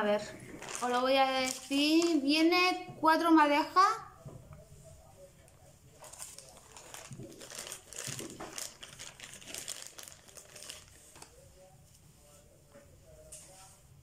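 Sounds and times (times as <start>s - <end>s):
plastic packaging crinkling: 0.3s - 2.3s, 5.5s - 11.4s.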